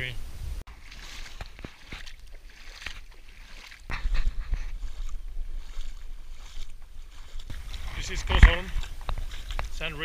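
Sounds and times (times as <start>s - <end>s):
bare feet splashing in water: 0.7s - 10.0s
wind buffeting microphone: 3.9s - 9.9s.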